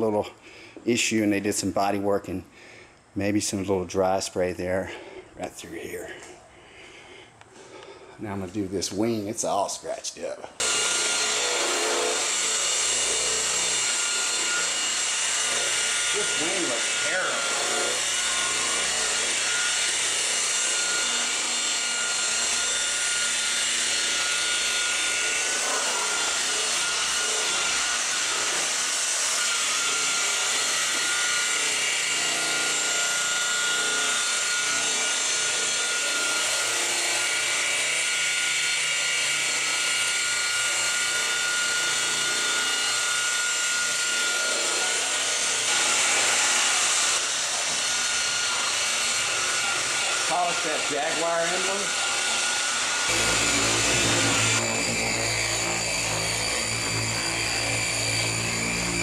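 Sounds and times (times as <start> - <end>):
rotary polisher motor whine: 10.5 - 59.0
buffing pad rubbing paint: 53.1 - 56.0.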